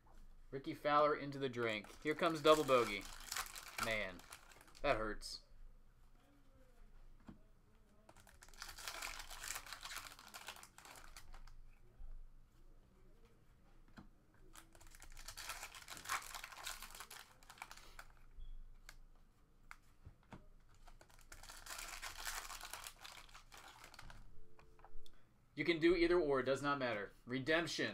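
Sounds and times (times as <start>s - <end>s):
foil wrappers crinkling: 1.7s - 4.8s, 8.2s - 11.5s, 14.5s - 18.2s, 20.7s - 24.2s.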